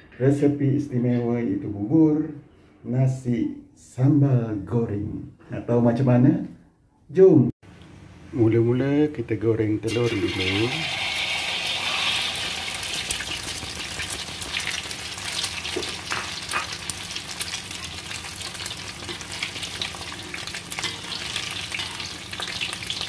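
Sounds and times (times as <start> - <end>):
egg sizzling in hot oil: 9.9 - 23.0.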